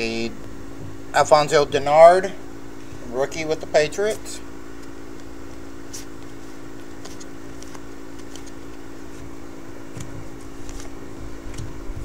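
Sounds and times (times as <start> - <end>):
machine humming: 0.0 - 12.0
trading cards flicking: 4.1 - 9.2.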